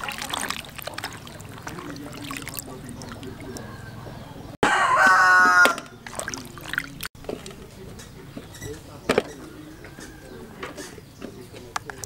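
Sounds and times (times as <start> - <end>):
water sloshing in basin: 0.0 - 4.6, 5.5 - 7.6
rooster crowing: 3.2 - 5.9.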